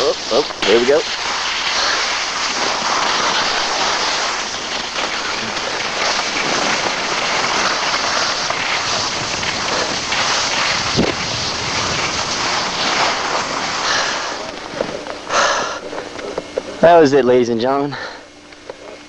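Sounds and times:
skis sliding over snow: 0.0s - 19.0s
wind rushing on microphone: 5.3s - 15.1s.

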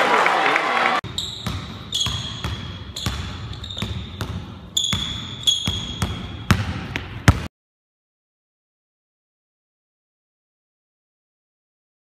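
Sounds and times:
sneakers squeaking: 1.0s - 7.5s
basketball dribbling on hardwood: 1.4s - 7.5s.

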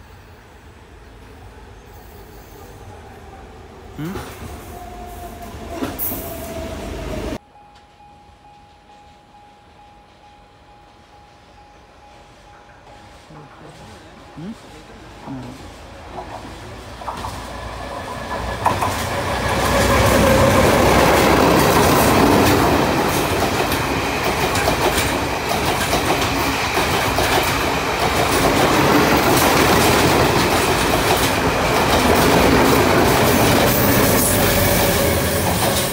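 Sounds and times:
train rumbling past: 0.0s - 35.9s
train wheels clicking over rail joints: 16.1s - 35.9s.

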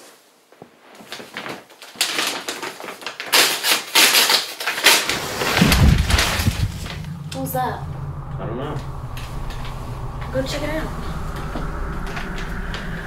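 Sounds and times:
paper envelope tearing and crinkling: 1.2s - 6.2s
low rumbling thud: 5.1s - 13.0s.

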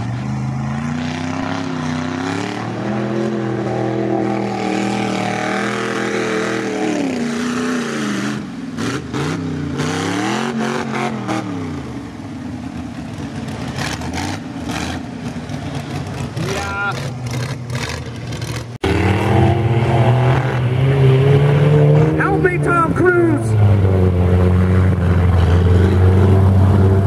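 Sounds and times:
truck engine revving: 0.0s - 27.0s.

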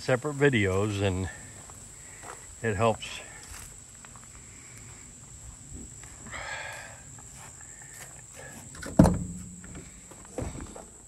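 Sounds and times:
footsteps in grass: 1.4s - 2.6s, 3.3s - 8.6s
thumps: 8.7s - 10.9s.

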